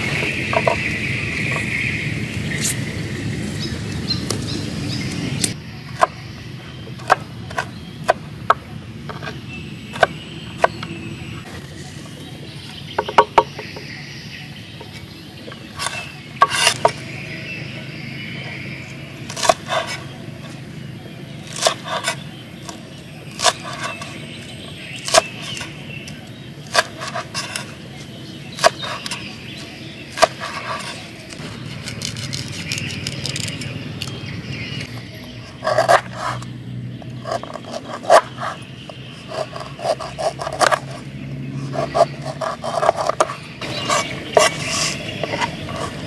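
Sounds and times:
steady background noise: 0:00.0 - 0:46.0.

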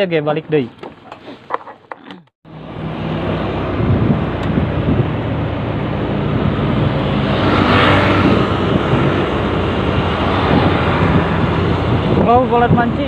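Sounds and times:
motorcycle engine accelerating: 0:02.5 - 0:12.5
wind rushing over microphone: 0:02.7 - 0:13.0.

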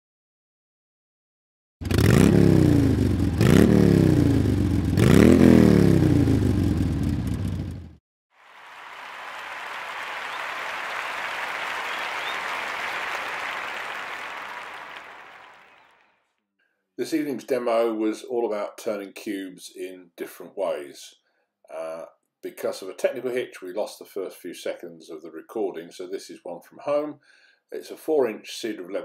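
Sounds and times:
engine revving: 0:01.8 - 0:08.0.

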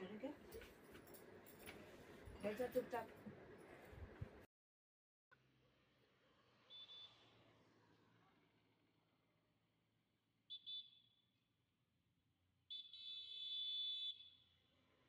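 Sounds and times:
vehicle horn honking: 0:12.7 - 0:14.3.

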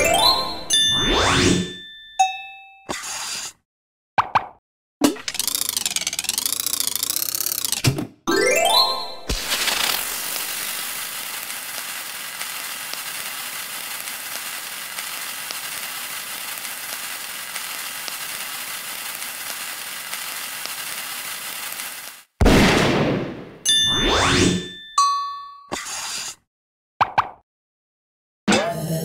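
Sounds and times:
fuse crackling sizzle: 0:08.7 - 0:22.4.

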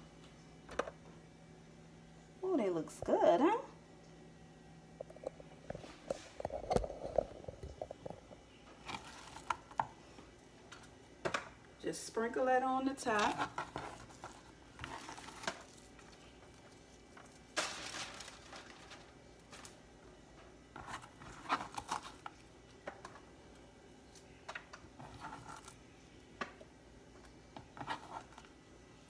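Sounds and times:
light rustles and clicks in foil pan: 0:13.0 - 0:19.8.

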